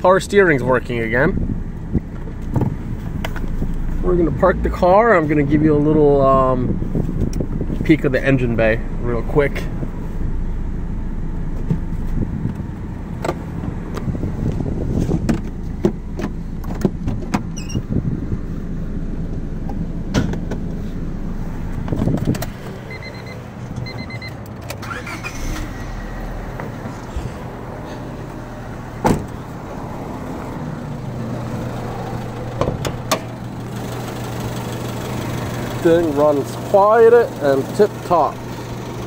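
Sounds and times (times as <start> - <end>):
car engine idling: 0.0 - 39.0
short double beeps: 22.9 - 24.4.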